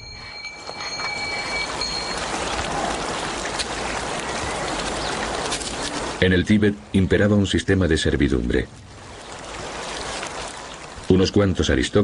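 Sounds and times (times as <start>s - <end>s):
faint high steady tones: 0.0s - 2.7s.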